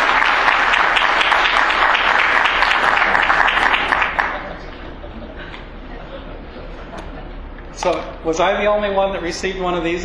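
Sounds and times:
audience applauding: 0:00.0 - 0:04.7.

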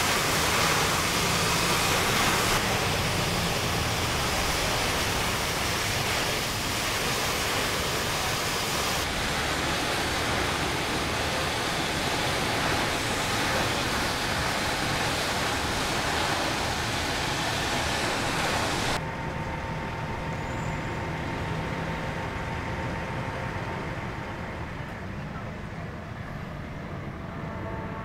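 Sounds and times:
compressed air jet hissing: 0:00.0 - 0:19.0.

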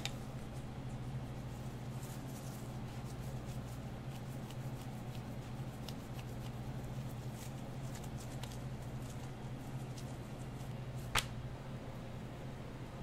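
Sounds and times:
tortilla rustling: 0:00.0 - 0:11.4.

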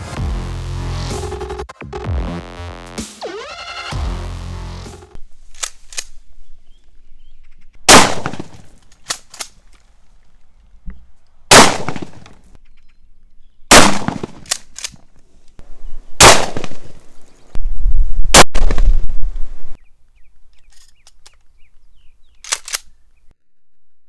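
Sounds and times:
shotgun shots: 0:07.9 - 0:08.7, 0:11.5 - 0:12.3, 0:13.7 - 0:14.6, 0:16.2 - 0:16.9
shotgun pump racking clacks: 0:22.4 - 0:22.9.

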